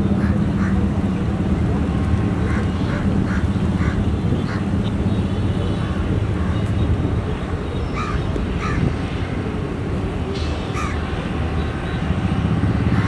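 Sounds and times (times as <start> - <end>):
birds calling: 0.0 - 1.4, 2.3 - 9.2, 10.3 - 12.2
diesel locomotive engine rumbling: 0.0 - 13.0.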